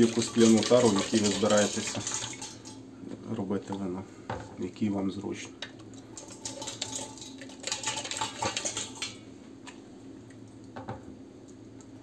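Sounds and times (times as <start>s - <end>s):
liquid sloshing into glass bottle: 0.0s - 2.8s.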